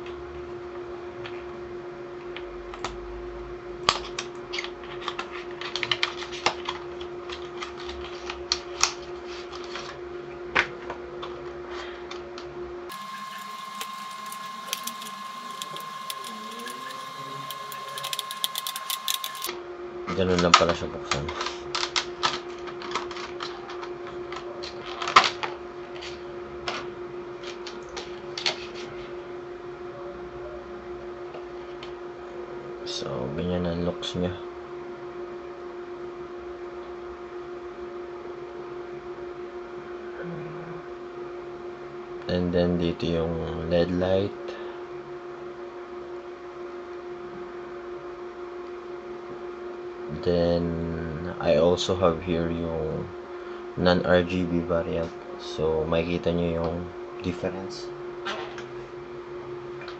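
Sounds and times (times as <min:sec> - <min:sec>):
steady hum: 0:07.2 - 0:24.4
low hum: 0:12.9 - 0:19.5
packaging crackles and clicks: 0:12.9 - 0:19.5.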